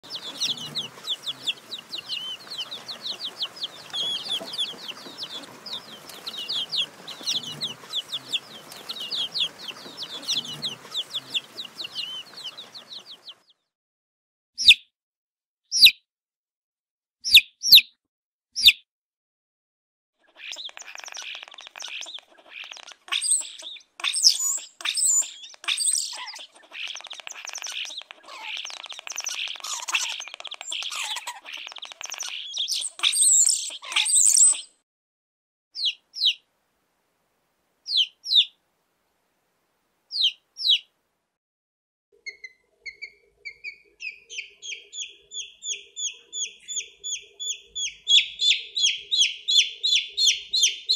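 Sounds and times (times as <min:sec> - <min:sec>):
baby chicks peeping: 0:00.0 - 0:13.6, 0:17.2 - 0:17.9, 0:20.2 - 0:34.8, 0:35.8 - 0:36.4, 0:37.9 - 0:38.6, 0:40.1 - 0:40.9, 0:42.2 - 0:50.9.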